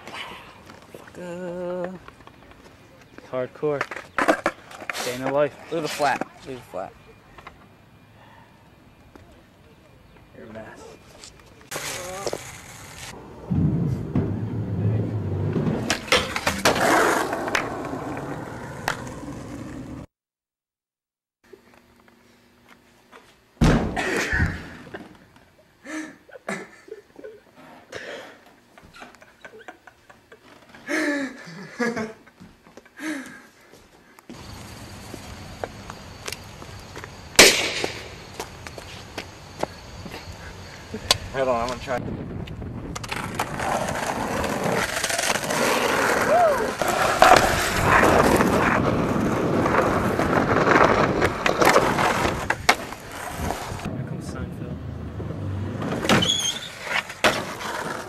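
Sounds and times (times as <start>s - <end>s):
skateboard wheels on rough concrete: 0.0s - 6.9s, 11.7s - 20.1s, 34.3s - 58.0s
skateboarder crashing onto floor: 15.4s - 17.8s, 23.6s - 24.9s, 55.8s - 58.0s.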